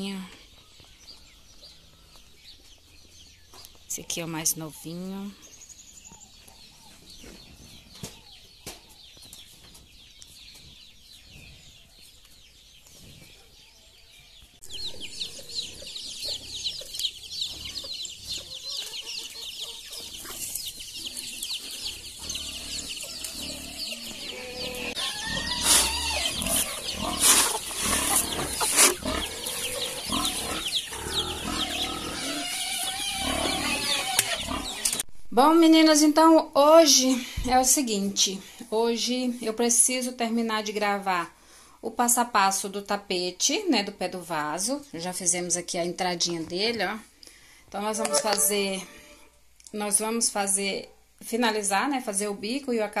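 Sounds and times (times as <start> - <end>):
chicks peeping: 0.0 - 35.0
hens clucking: 14.8 - 35.0.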